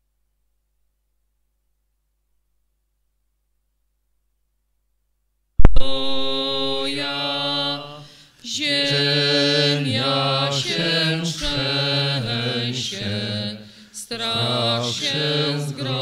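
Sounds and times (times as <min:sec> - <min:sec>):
loud click: 0:05.6 - 0:06.4
hymn singing in church: 0:05.8 - 0:16.0.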